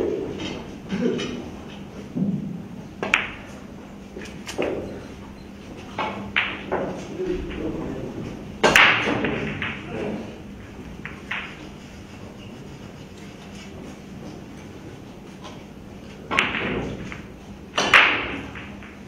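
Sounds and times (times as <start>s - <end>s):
billiard balls clacking: 3.0s - 12.4s, 13.6s - 19.0s.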